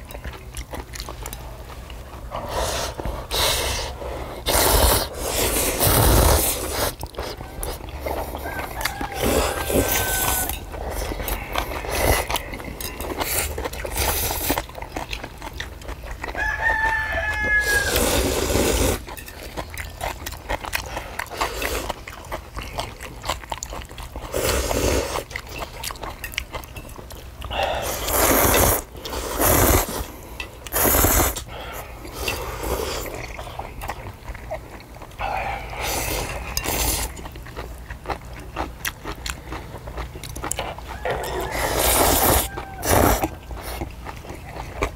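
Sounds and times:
chewing: 0:00.0 - 0:44.9
noodles slurped loudly: 0:02.5 - 0:07.4, 0:17.6 - 0:19.1, 0:27.6 - 0:30.1, 0:30.7 - 0:31.5, 0:41.5 - 0:43.8
rooster crowing: 0:07.2 - 0:12.5, 0:16.2 - 0:18.3, 0:40.7 - 0:43.4.

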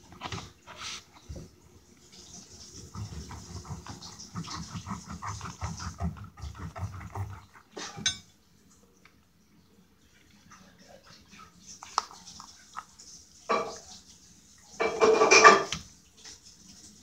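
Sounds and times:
knife sawing through melon: 0:02.8 - 0:07.6.

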